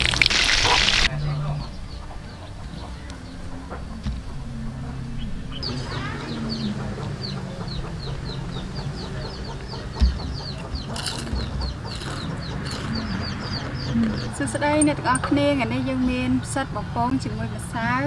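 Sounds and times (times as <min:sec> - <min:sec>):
chicks peeping: 0:00.0 - 0:15.3.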